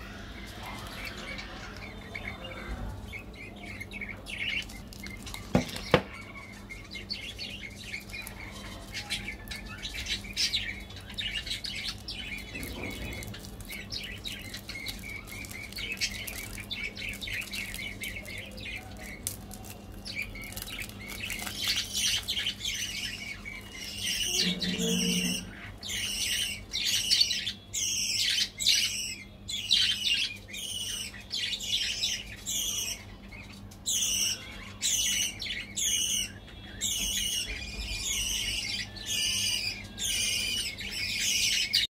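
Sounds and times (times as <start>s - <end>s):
bird chirping: 0.0s - 41.9s
foil wrapper crinkling: 4.5s - 6.7s, 11.0s - 23.9s.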